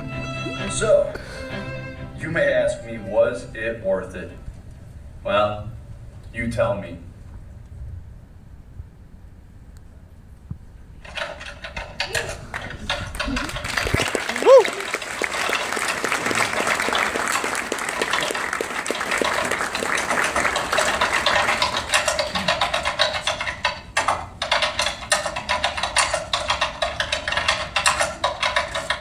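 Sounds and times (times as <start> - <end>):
audience applauding: 12.5 - 22.8.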